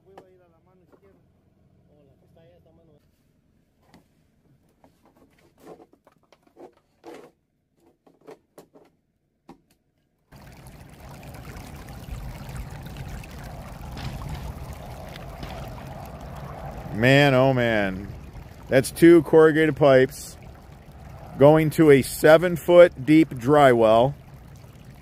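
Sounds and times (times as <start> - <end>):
water rushing and churning: 10.3 - 25.0.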